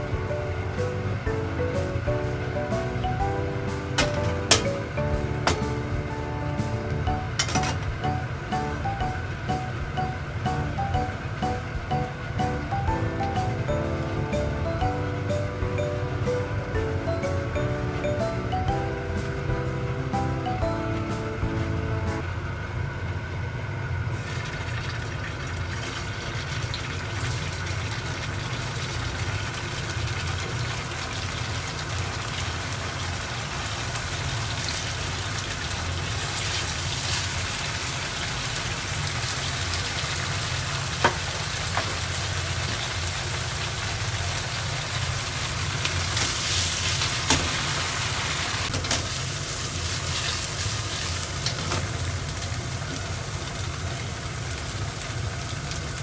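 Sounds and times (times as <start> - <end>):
tofu sizzling in hot oil: 24.2 - 56.0.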